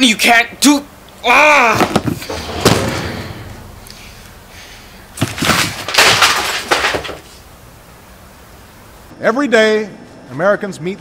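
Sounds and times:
knocks and rustles: 1.9s - 4.3s, 5.1s - 7.5s.

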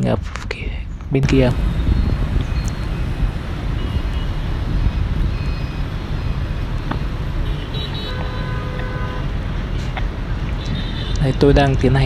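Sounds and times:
traffic passing: 0.7s - 12.0s
vehicle horn: 2.4s - 9.5s, 10.6s - 11.3s.

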